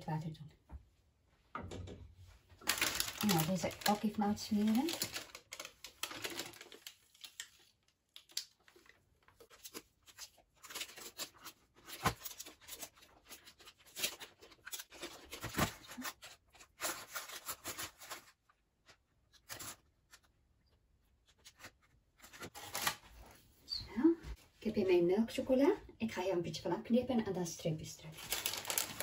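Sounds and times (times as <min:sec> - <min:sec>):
baking paper crinkling: 0:02.5 - 0:23.4, 0:28.1 - 0:29.0.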